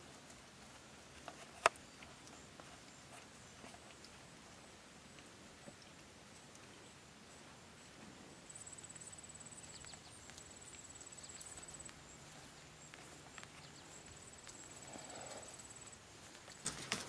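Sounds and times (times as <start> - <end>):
insects chirring: 7.3 - 17.0
faint ticks: 8.6 - 16.8.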